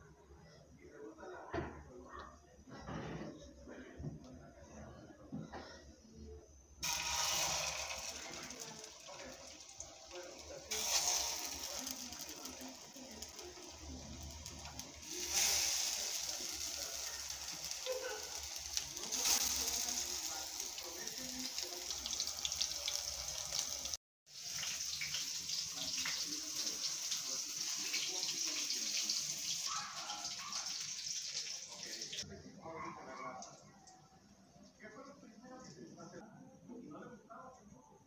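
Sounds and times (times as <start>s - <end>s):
patties sizzling in a frying pan: 6.8s - 32.3s.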